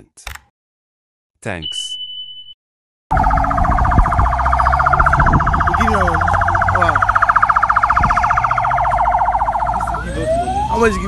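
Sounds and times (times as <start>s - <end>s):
siren warbling: 3.1s - 11.0s.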